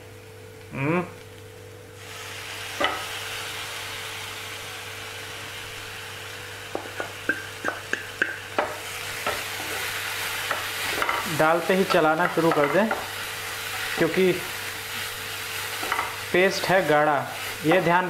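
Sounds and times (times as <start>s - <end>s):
paste sizzling in hot oil: 2.0s - 18.0s
wooden spatula stirring and tapping pan: 6.7s - 9.8s, 10.4s - 13.2s, 15.7s - 16.2s.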